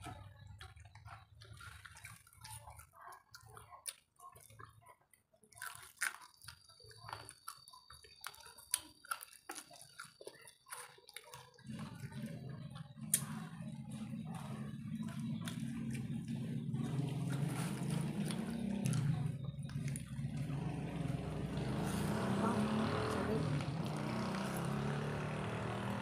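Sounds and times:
chewing and slurping noodles: 0:00.0 - 0:26.0
wet mouth clicks and smacks: 0:13.0 - 0:13.6.

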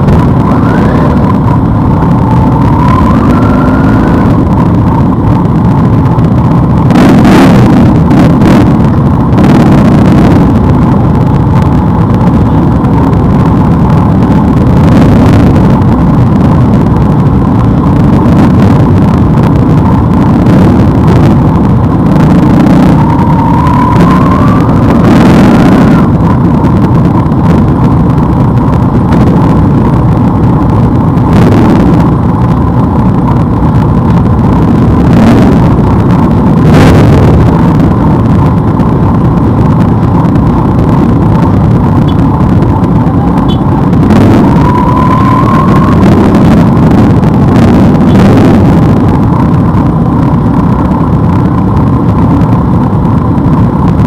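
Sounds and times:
motorcycle throttle blips: 0:40.6 - 0:49.2.

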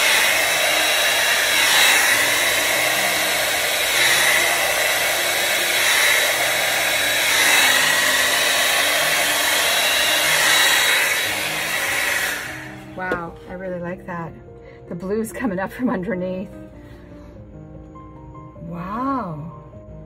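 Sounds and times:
hair dryer blowing air: 0:00.0 - 0:13.6.

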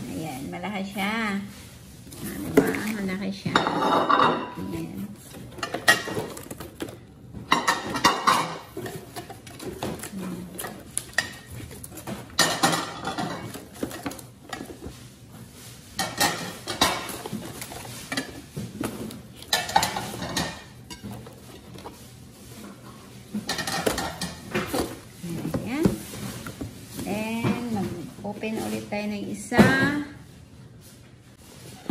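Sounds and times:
plates knocking and clinking: 0:02.5 - 0:04.7, 0:05.3 - 0:15.0, 0:16.0 - 0:22.0, 0:23.3 - 0:26.8
cardboard rustling and scraping: 0:04.9 - 0:28.9.

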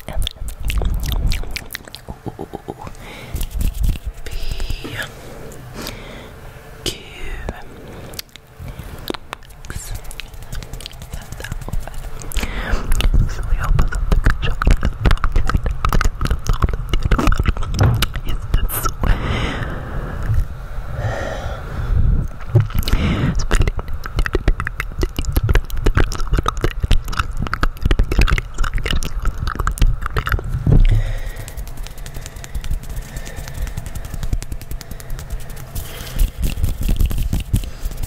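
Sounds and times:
wet mouth clicks: 0:00.0 - 0:05.6, 0:07.4 - 0:19.1, 0:22.2 - 0:38.0
hands rubbing microphone grille: 0:02.1 - 0:05.0, 0:09.6 - 0:12.3, 0:30.4 - 0:38.0
low handling rumble: 0:03.9 - 0:24.8, 0:25.4 - 0:37.4.

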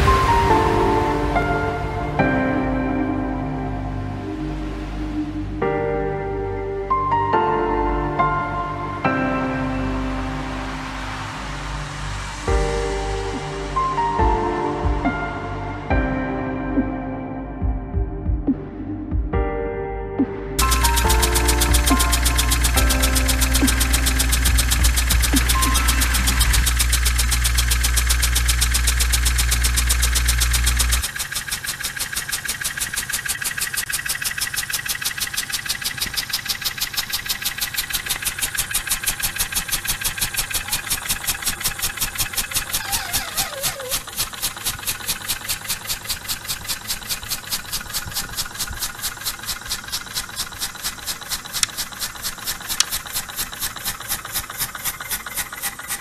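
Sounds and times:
loud low steady hum: 0:20.6 - 0:31.1
model steam engine puffing: 0:20.6 - 0:56.0.

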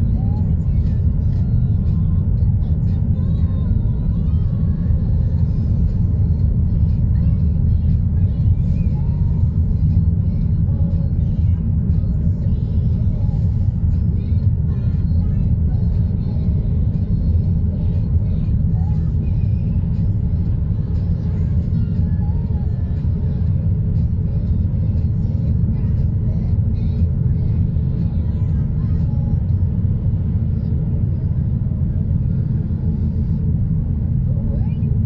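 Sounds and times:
engine and tyre rumble: 0:00.0 - 0:35.0.

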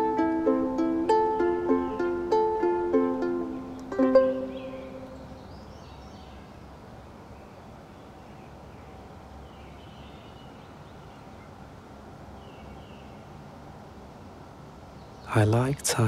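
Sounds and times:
faint bird chirps: 0:04.4 - 0:11.6.

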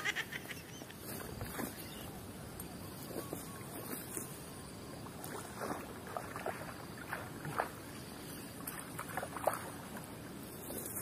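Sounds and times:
fish splashing in water: 0:05.2 - 0:10.2.

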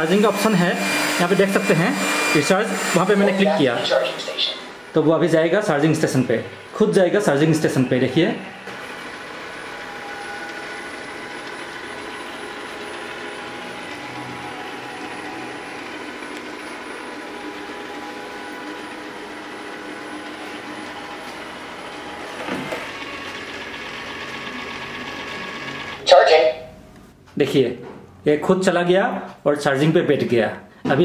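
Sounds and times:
robot vacuum motors whirring: 0:00.0 - 0:04.6, 0:05.9 - 0:26.0.

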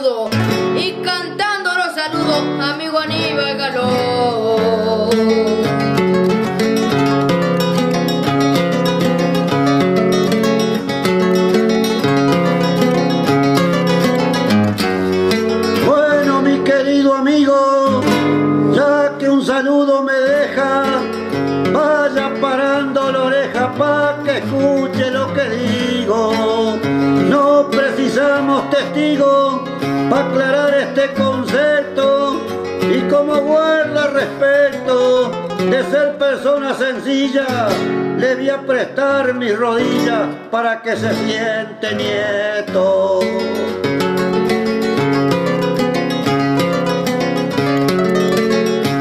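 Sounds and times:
acoustic guitar folk music: 0:00.0 - 0:49.0.

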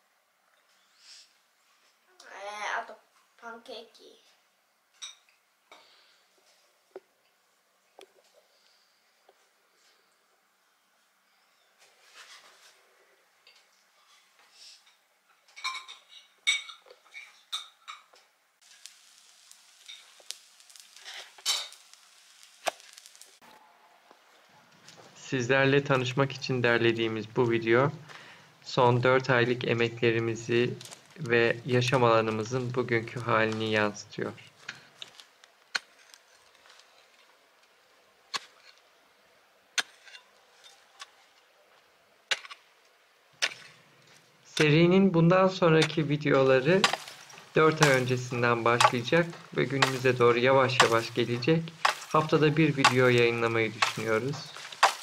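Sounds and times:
pancake sizzling: 0:18.6 - 0:23.4, 0:46.2 - 0:55.0
hoe striking stony ground: 0:42.3 - 0:42.6, 0:46.6 - 0:55.0.

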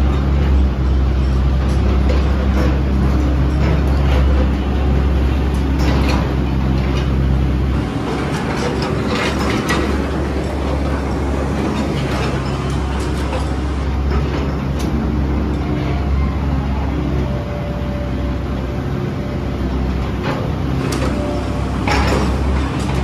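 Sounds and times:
heavy machinery engine hum: 0:00.0 - 0:23.0
metal clanks and knocks: 0:01.2 - 0:15.0, 0:20.1 - 0:23.0.

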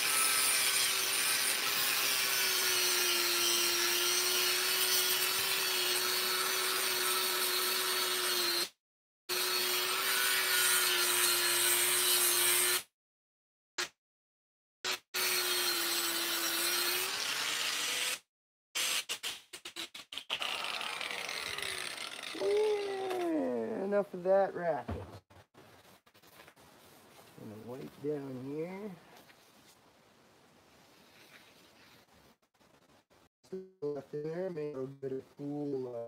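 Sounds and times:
grinder scraping metal: 0:18.8 - 0:23.6
angle grinder motor whine: 0:20.4 - 0:23.5.

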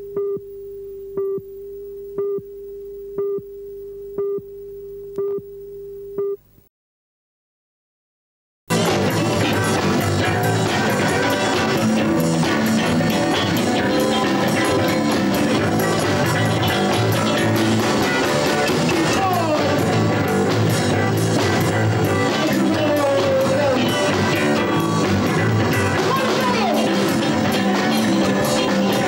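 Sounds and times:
drums: 0:08.7 - 0:29.0
electric guitars: 0:08.7 - 0:29.0
person singing: 0:08.7 - 0:29.0.

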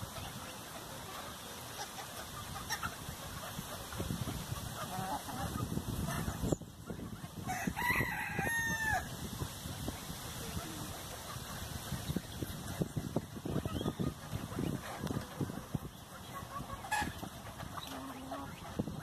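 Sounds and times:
hens clucking: 0:00.0 - 0:19.0
rooster crowing: 0:07.5 - 0:09.1.

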